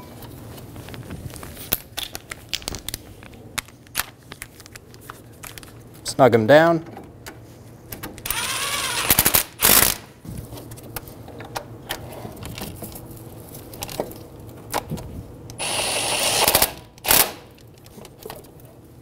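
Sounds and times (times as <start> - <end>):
cordless ratchet whirring: 8.2 - 10.0, 15.6 - 17.4.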